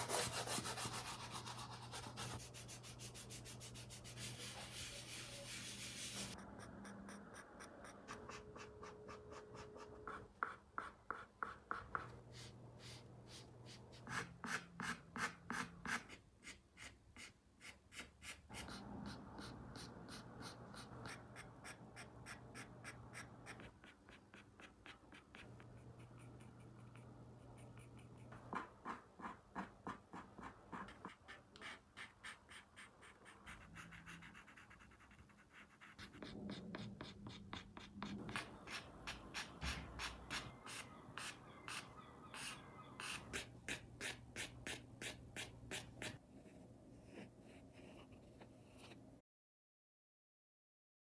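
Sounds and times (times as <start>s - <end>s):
pastel rubbing on paper: 0.0s - 6.4s
pencils scratching on paper: 0.0s - 49.0s
faint steady hum: 18.5s - 28.9s.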